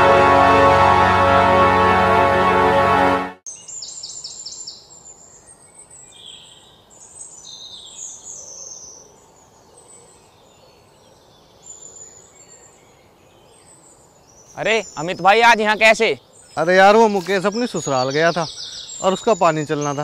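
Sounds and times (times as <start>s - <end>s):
background music: 0.0s - 3.4s
birds chirping and calling: 14.4s - 20.0s.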